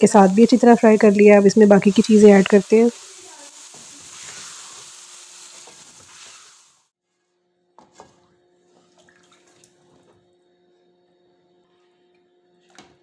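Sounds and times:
chicken sizzling in a pot: 0.0s - 7.0s.

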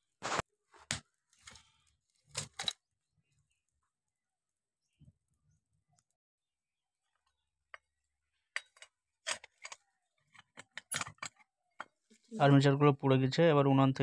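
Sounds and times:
metal tool clinking and knocking: 7.7s - 12.0s.

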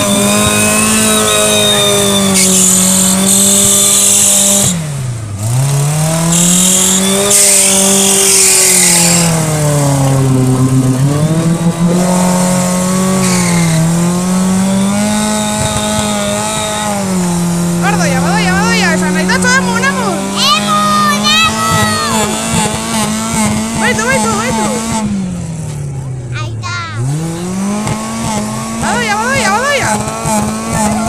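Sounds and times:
truck engine at high revs: 0.0s - 31.0s
spinning wheels throwing mud: 13.1s - 17.8s.

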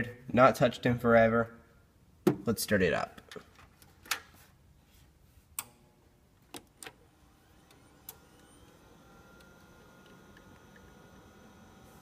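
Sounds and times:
hard drive spinning up whine: 7.3s - 12.0s.

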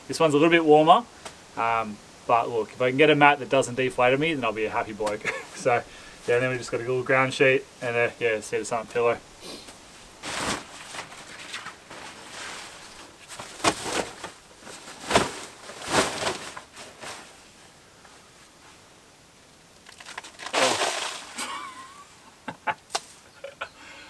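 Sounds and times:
nylon groundsheet swishing: 10.2s - 17.4s.

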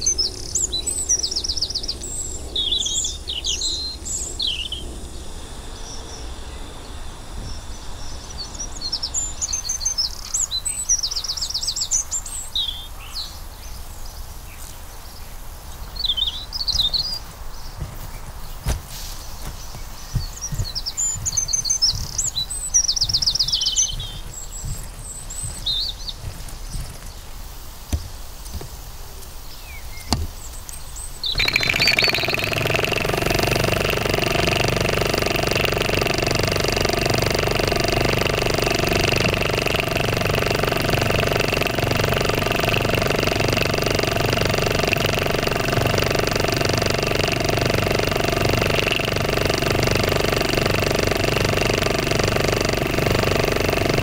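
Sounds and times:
birds chirping: 0.0s - 54.0s
steam hissing: 31.3s - 54.0s
model steam engine beating: 31.4s - 54.0s.

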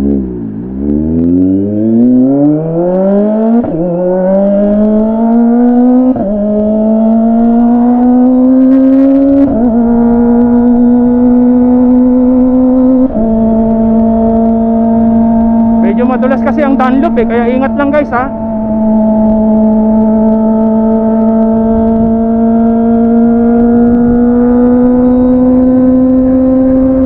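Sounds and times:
motorcycle accelerating through gears: 0.0s - 27.0s.

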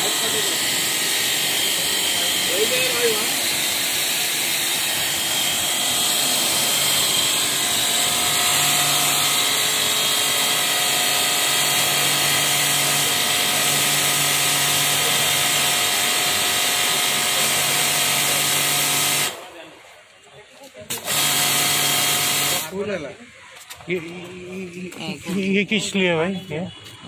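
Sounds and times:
pressure washer motor whine: 0.0s - 19.5s, 20.9s - 22.7s.

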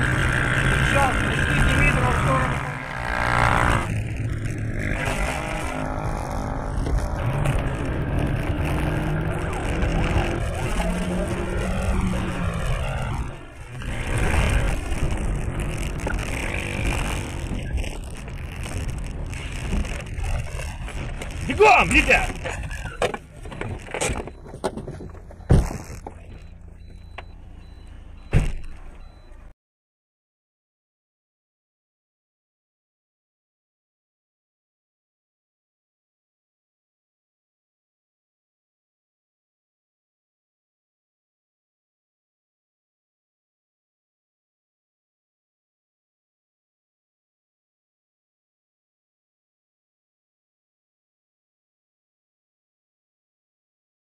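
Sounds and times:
car engine accelerating: 0.0s - 29.5s
road and tyre noise: 0.0s - 29.5s
faint high beep: 26.2s - 29.5s.

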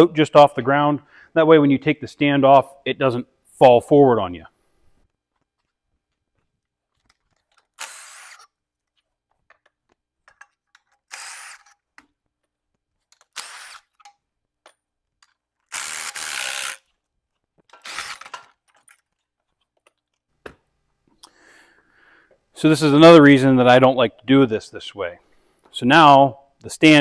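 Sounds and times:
cordless power tool spinning: 7.5s - 8.6s, 11.0s - 11.9s, 13.2s - 14.1s, 15.7s - 16.9s, 17.7s - 18.5s.

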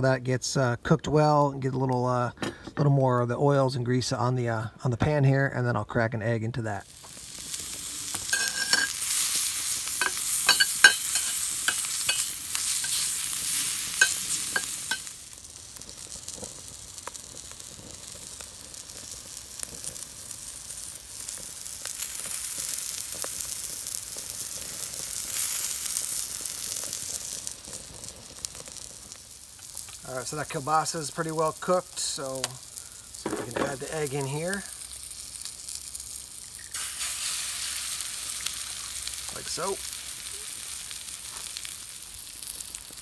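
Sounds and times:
grease popping: 6.8s - 43.0s
sausage sizzling in a skillet: 6.8s - 43.0s.

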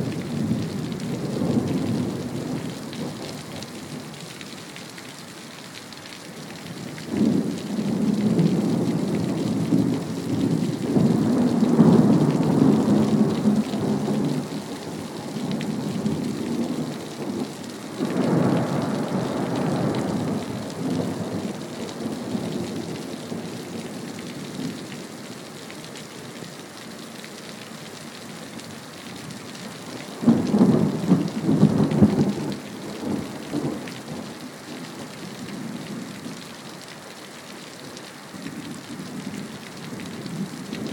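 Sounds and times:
steady rain: 0.0s - 40.9s.

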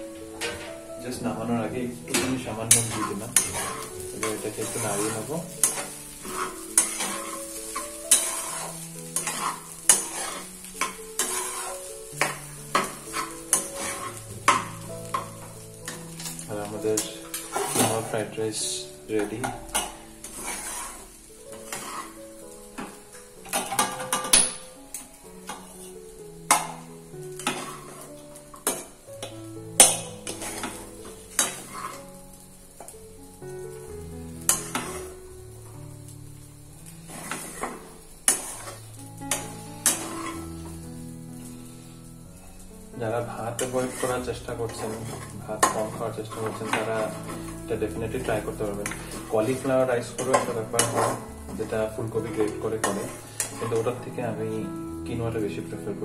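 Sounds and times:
background music: 0.0s - 56.0s
light sizzle of frying: 0.0s - 56.0s
utensil scraping pan: 2.1s - 18.3s, 19.2s - 22.2s, 25.5s - 28.9s, 29.8s - 32.1s, 34.5s - 35.1s, 37.1s - 40.4s, 43.5s - 54.0s.

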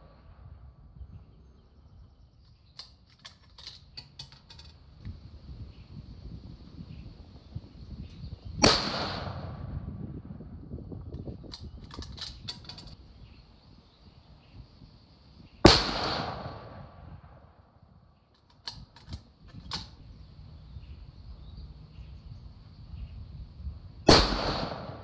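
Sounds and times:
rifle shots: 8.6s - 9.7s, 15.6s - 17.0s, 24.1s - 25.0s.

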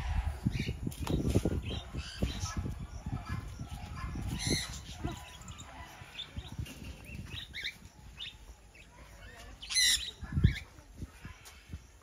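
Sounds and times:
budgerigars chirping: 1.7s - 10.7s
bird squawk: 9.6s - 10.6s.

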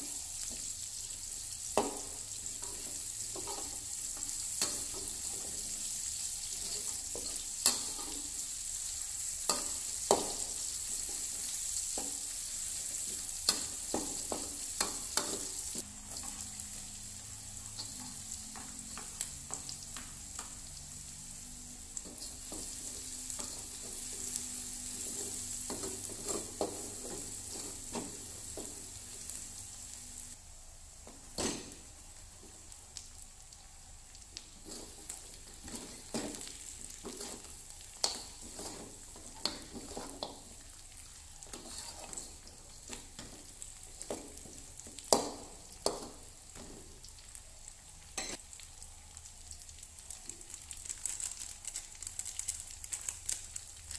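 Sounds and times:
garlic sizzling in hot oil: 0.0s - 53.9s
spatula scraping a metal wok: 37.0s - 40.3s, 41.5s - 42.4s.

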